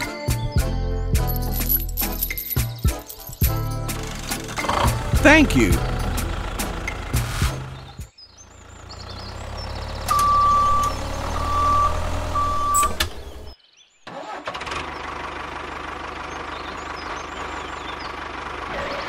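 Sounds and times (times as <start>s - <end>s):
tractor engine running: 1.0s - 13.6s, 14.2s - 19.0s
birds chirping faintly: 7.6s - 14.0s.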